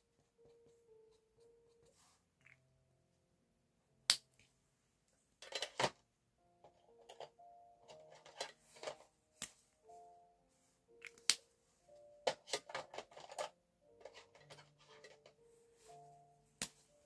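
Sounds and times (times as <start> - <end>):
faint background music: 0.0 - 17.0
markers clattering together: 12.3 - 15.3.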